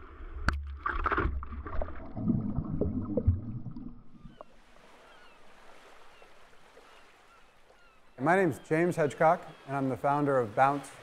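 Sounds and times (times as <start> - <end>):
water splashing around paddleboard: 0.3 - 8.2.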